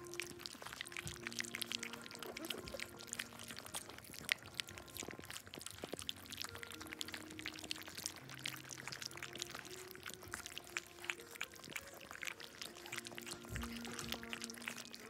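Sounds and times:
puppies lapping from metal bowl: 0.0s - 15.0s.

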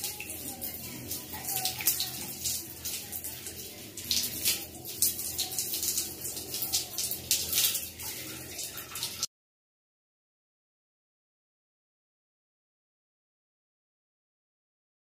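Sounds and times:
water poured over wet hair: 0.0s - 9.3s.

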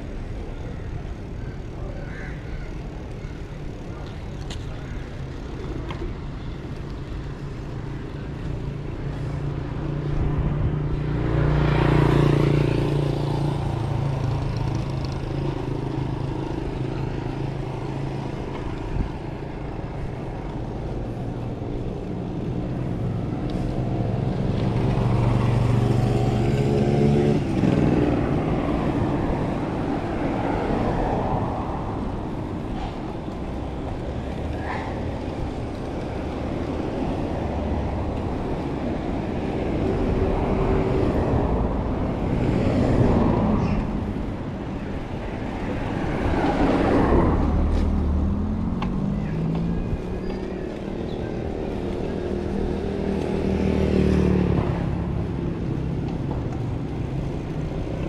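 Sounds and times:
road noise: 0.0s - 58.0s
vehicle engines: 0.0s - 58.0s.

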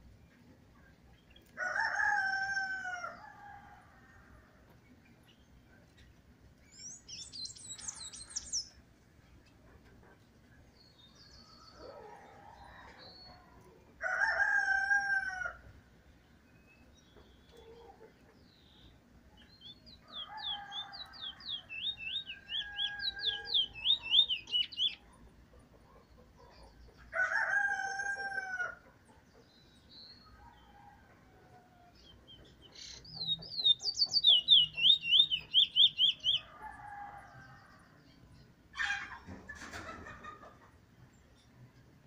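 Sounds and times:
rooster crowing: 1.6s - 4.5s, 14.0s - 15.7s, 20.0s - 23.8s, 27.1s - 28.8s, 36.4s - 37.9s
bullfinch singing: 19.6s - 25.1s, 32.1s - 36.5s.

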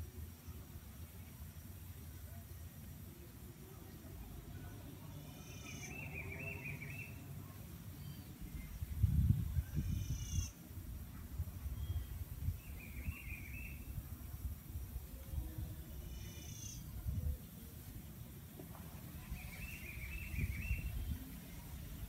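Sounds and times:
low rumble on microphone: 8.4s - 22.0s
bird warbling: 16.0s - 16.9s.

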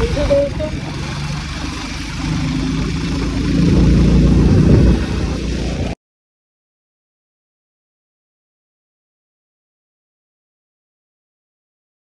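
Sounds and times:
vehicle engine running: 0.0s - 6.0s.

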